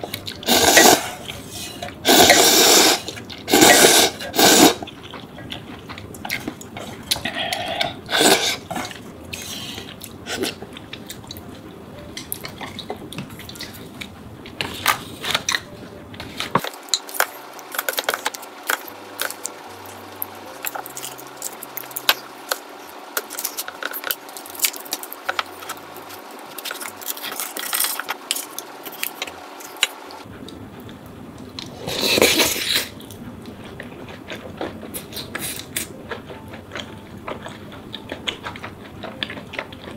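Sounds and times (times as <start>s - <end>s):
food chewing: 0.0s - 39.9s
noodles slurped: 2.0s - 4.9s, 7.2s - 8.9s.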